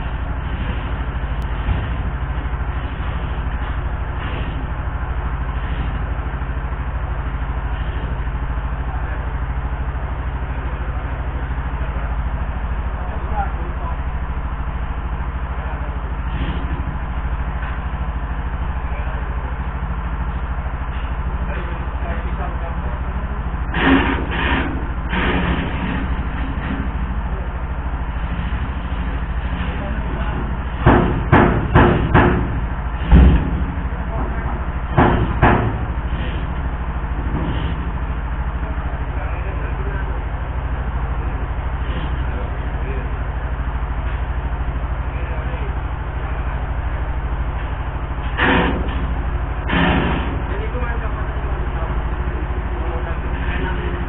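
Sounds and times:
heavy engine idling: 0.0s - 54.0s
heavy knocks on metal: 30.8s - 36.4s, 48.3s - 49.1s, 49.7s - 50.4s.

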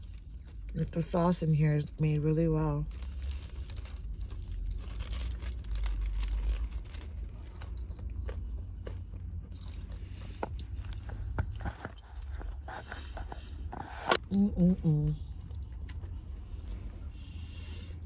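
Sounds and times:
steady low rumble: 0.0s - 18.0s
crunching and chewing: 2.8s - 13.8s.

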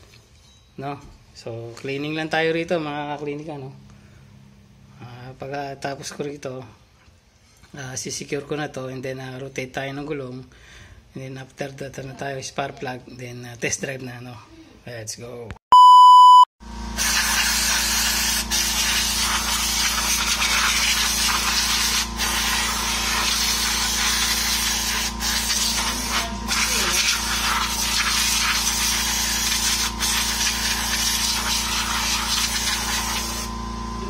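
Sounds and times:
aerosol spray hissing: 17.0s - 33.5s.

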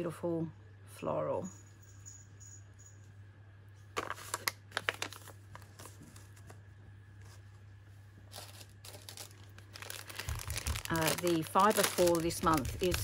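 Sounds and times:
faint low hum: 0.0s - 13.0s
paper sack rustling: 8.3s - 13.0s.

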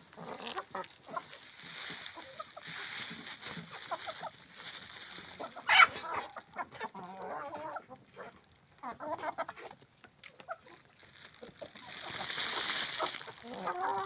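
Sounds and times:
chickens clucking: 0.0s - 14.0s
chickens pecking ground: 0.0s - 14.0s
loud chicken call: 5.4s - 6.4s, 11.8s - 14.0s.

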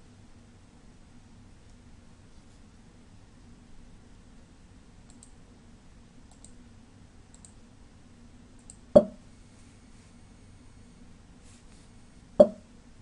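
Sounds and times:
computer mouse clicks: 5.1s - 5.4s, 6.3s - 6.6s, 7.3s - 7.6s, 8.6s - 9.2s.

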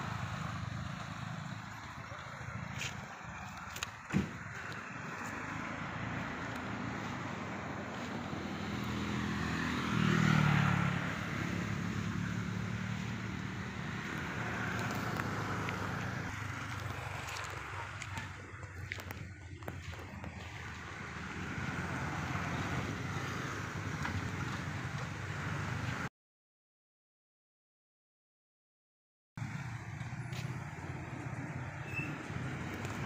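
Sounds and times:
vehicle engine passing: 0.0s - 26.1s.

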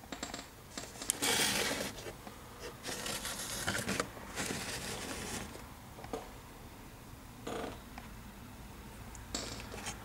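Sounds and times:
plastic model scraping and rustling: 0.9s - 5.6s.

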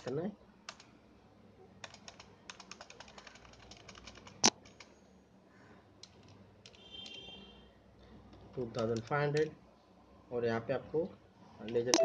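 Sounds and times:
fast typing on keyboard: 0.7s - 0.9s, 1.8s - 4.9s.

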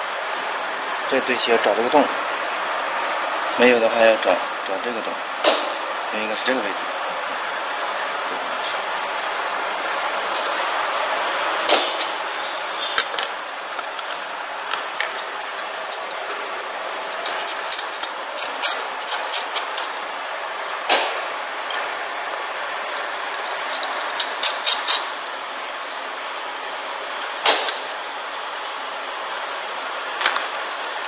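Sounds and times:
hex key clicking on bolts: 17.2s - 19.9s.

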